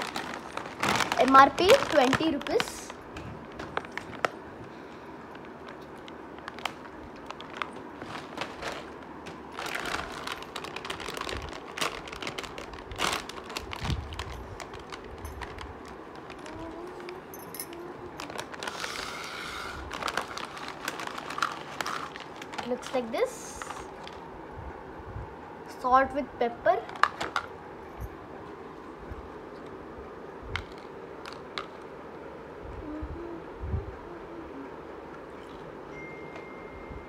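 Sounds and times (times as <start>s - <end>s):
crisp packet crinkling: 0.0s - 4.4s, 5.3s - 24.3s.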